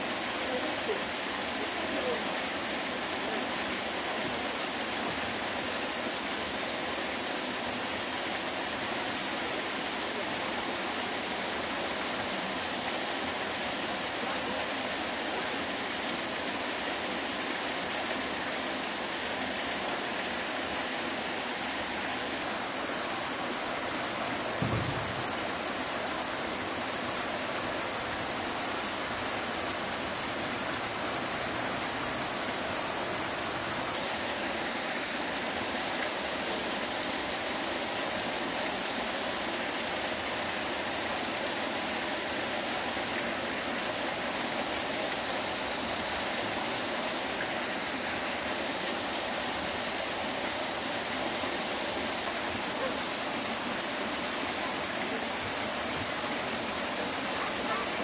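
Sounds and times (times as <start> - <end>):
running water rushing: 0.0 - 58.0
low thump: 24.6 - 25.6.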